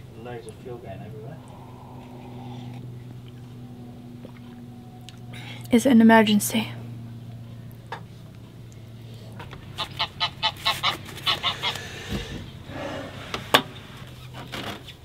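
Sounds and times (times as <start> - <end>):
geese honking: 9.7 - 12.4.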